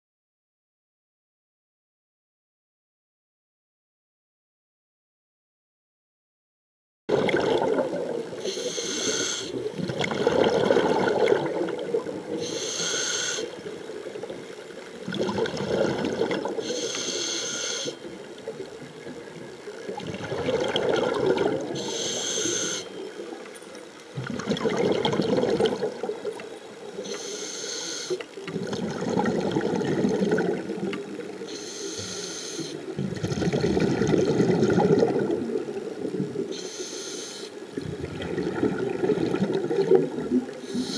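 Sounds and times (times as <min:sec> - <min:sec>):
diver breathing through regulator: 0:08.4 - 0:09.6, 0:12.4 - 0:13.6, 0:16.6 - 0:18.1, 0:21.7 - 0:23.0, 0:27.0 - 0:28.3, 0:31.5 - 0:32.9, 0:36.5 - 0:37.6, 0:40.6 - 0:40.9.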